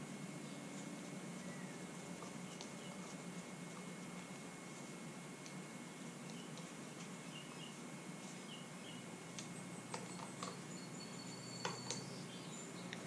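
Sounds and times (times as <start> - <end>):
low steady hum: 0.0 - 13.0
faint high chirps: 6.2 - 13.0.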